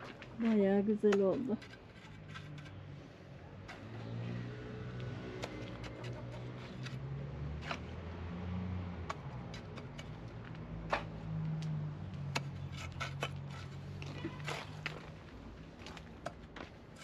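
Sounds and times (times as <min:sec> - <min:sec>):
sharp clicks and scrapes: 0:01.0 - 0:03.0, 0:05.0 - 0:07.0, 0:09.0 - 0:15.2.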